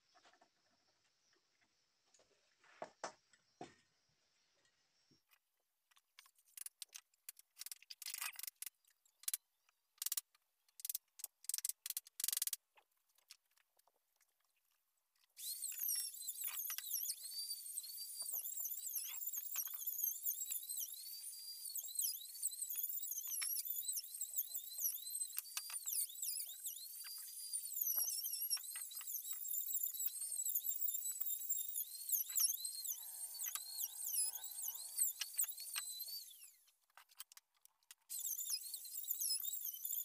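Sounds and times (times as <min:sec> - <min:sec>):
high-pitched squeaky chirps: 0:15.4 - 0:36.6, 0:38.1 - 0:40.0.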